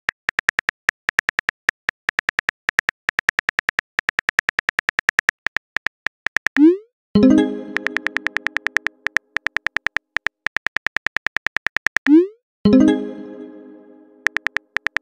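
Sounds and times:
phone keyboard typing clicks: 0.1s - 6.7s, 7.6s - 12.2s, 14.2s - 15.0s.

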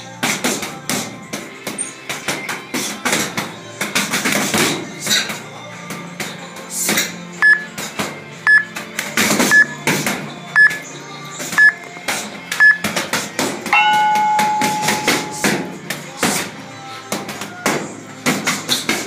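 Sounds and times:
short electronic beeps: 7.4s - 7.7s, 8.5s - 8.7s, 9.5s - 9.8s, 10.6s - 10.8s, 12.6s - 12.8s, 13.8s - 15.6s.

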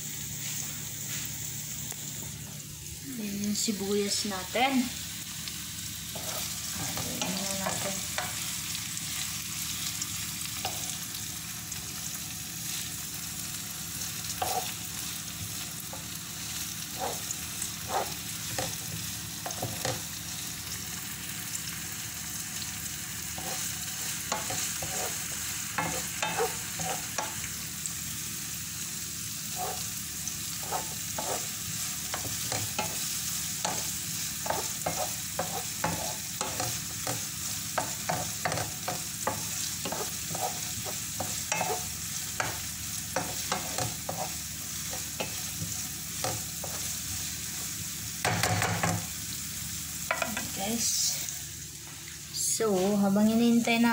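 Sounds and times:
onions sizzling in oil: 0.0s - 53.9s
wooden spatula scraping pan: 6.1s - 8.4s, 14.4s - 14.7s, 16.9s - 18.8s, 23.4s - 27.4s, 29.5s - 29.9s, 30.6s - 33.0s, 33.7s - 37.2s, 37.8s - 42.6s, 43.2s - 46.9s.

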